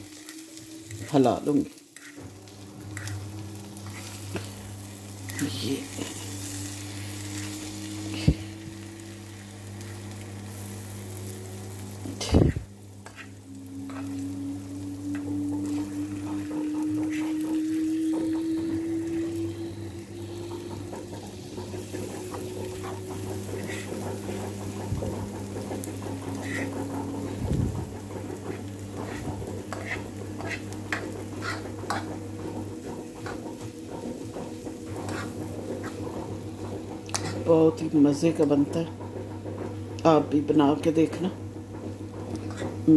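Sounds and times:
food sizzling in a frying pan: 0.0 - 42.9
low hum: 0.0 - 42.9
fork scraping a pan: 1.8 - 4.6, 12.0 - 14.2, 15.1 - 19.3, 21.8 - 27.4, 28.3 - 37.6, 41.8 - 42.8.

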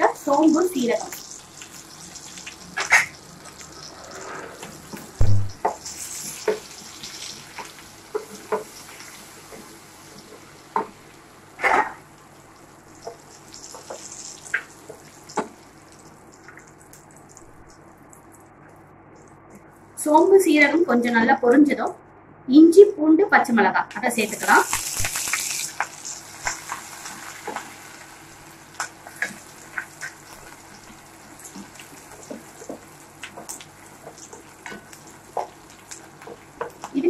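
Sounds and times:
seeds sizzling in hot oil: 0.0 - 17.8, 24.0 - 37.0
heavy thump: 5.2 - 5.6.

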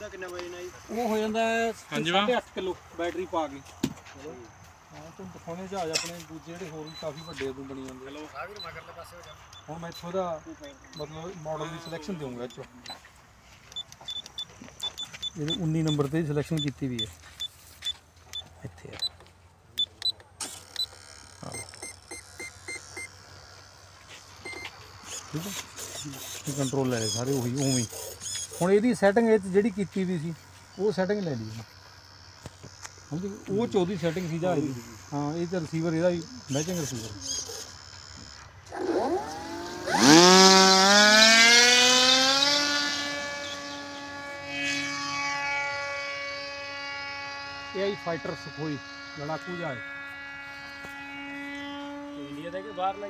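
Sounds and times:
faint electronic whir: 0.0 - 53.0
model plane motor whining: 5.6 - 13.1, 13.9 - 53.0
transmitter clicks: 13.7 - 23.1, 24.4 - 25.3
short high beeps: 20.8 - 23.1, 24.4 - 24.8.

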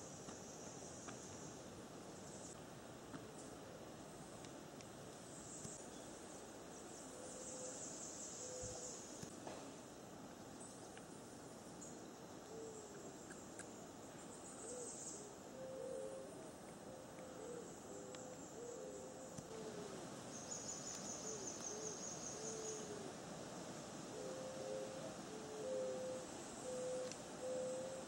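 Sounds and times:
low cooing bird calls: 7.0 - 9.2, 12.4 - 13.7, 14.4 - 23.2, 24.1 - 28.0.

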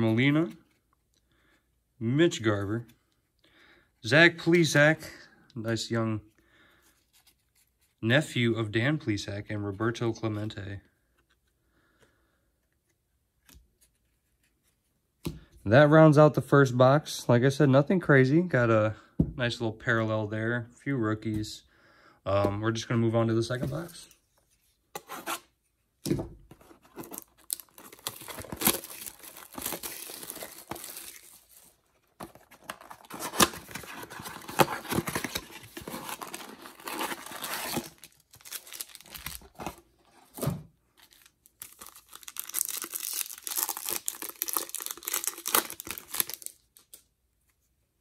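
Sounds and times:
cardboard box tearing open: 26.8 - 31.4, 32.2 - 39.8
foil wrapper ripping and crinkling: 32.6 - 39.6, 41.0 - 46.7.

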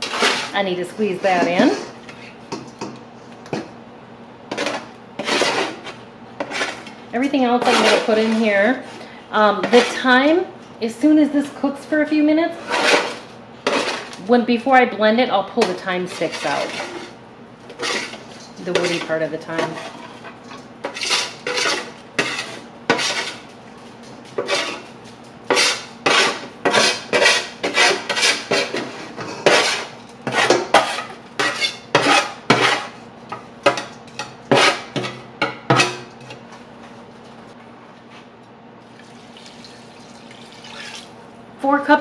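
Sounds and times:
spatula scraping metal pan: 0.0 - 2.0, 4.5 - 9.0, 9.6 - 10.1, 12.5 - 14.2, 15.6 - 23.5, 24.4 - 24.9, 25.5 - 33.0, 33.7 - 36.0.

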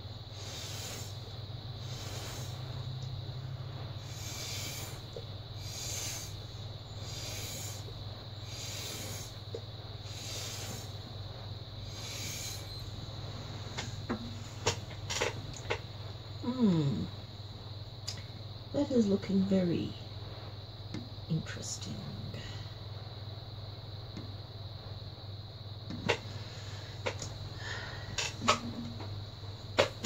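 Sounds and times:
steady low hum: 0.0 - 30.0
breath puffs through straw: 0.3 - 3.0, 3.9 - 14.6.

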